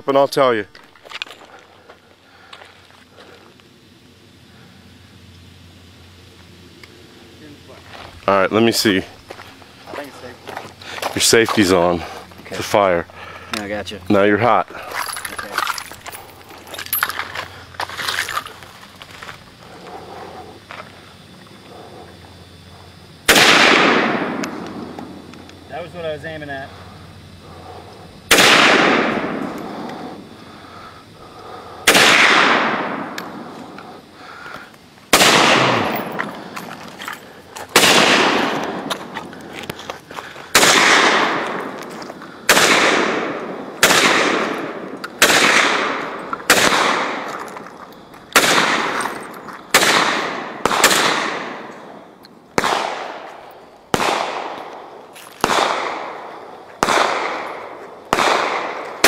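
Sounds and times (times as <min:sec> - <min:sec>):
rifle shots echoing: 0:23.2 - 0:25.2, 0:28.3 - 0:29.8, 0:31.8 - 0:33.4, 0:35.1 - 0:36.5, 0:37.7 - 0:38.9, 0:40.5 - 0:41.8, 0:42.5 - 0:47.3, 0:48.3 - 0:49.1, 0:49.7 - 0:51.9, 0:52.6 - 0:54.8, 0:55.4 - 0:59.0.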